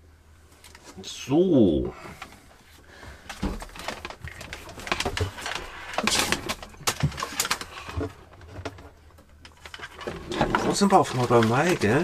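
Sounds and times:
cable handling clicks and knocks: 0:03.2 - 0:12.0.

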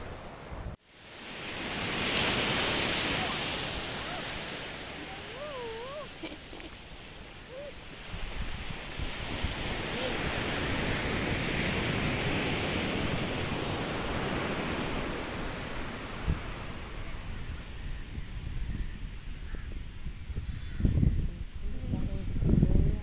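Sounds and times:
sea surf washing on beach: 0:00.0 - 0:20.4
wind rumbling on microphone: 0:00.0 - 0:23.0.

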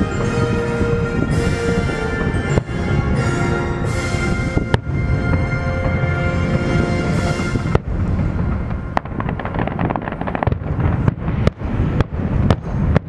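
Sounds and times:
show music: 0:00.0 - 0:09.2
fireworks bangs: 0:00.0 - 0:13.0
fireworks crackling: 0:00.0 - 0:13.0
low rumble: 0:00.0 - 0:13.0.

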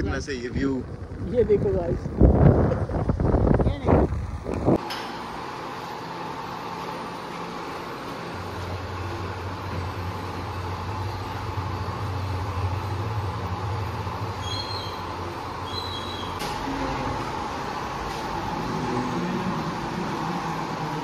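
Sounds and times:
vehicle engine rumble: 0:00.0 - 0:04.9, 0:07.5 - 0:21.0.

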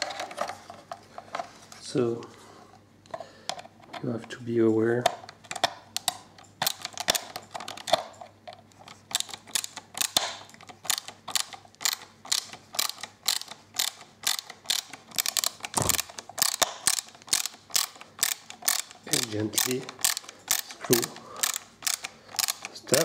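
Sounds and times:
screwdriver ratchet clicking: 0:09.1 - 0:23.0.

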